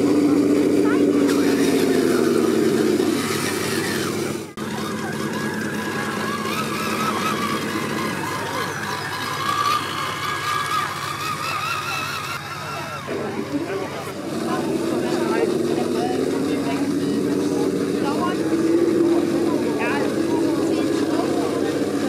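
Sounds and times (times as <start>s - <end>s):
toy car electric motor whining: 0.8s - 14.1s.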